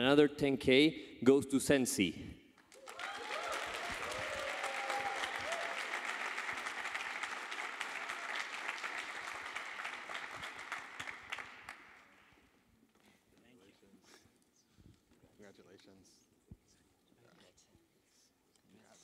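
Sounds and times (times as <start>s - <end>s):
audience applauding: 2.6s - 12.4s
audience cheering: 2.8s - 11.8s.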